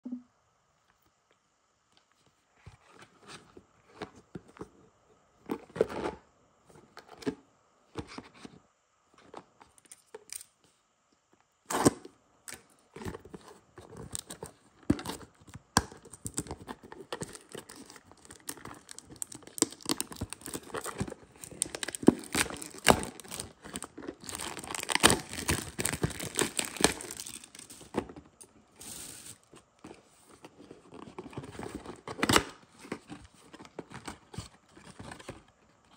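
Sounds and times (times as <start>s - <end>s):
plastic wrap tearing and crinkling: 17.2s - 28.0s.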